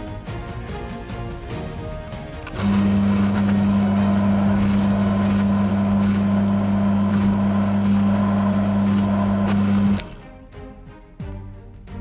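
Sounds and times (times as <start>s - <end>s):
electric drill boring into metal: 2.4s - 10.2s.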